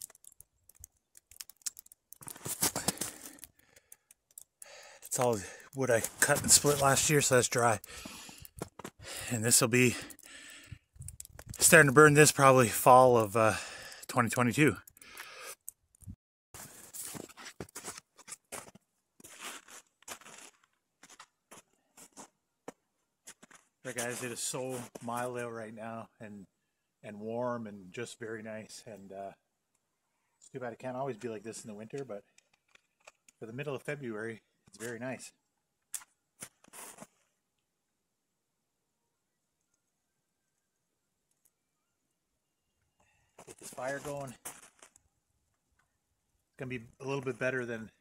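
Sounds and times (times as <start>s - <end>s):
footsteps crunching on snow: 2.2s - 3.4s, 5.2s - 9.0s, 16.6s - 22.3s, 23.3s - 25.1s, 36.4s - 37.2s, 43.4s - 44.9s.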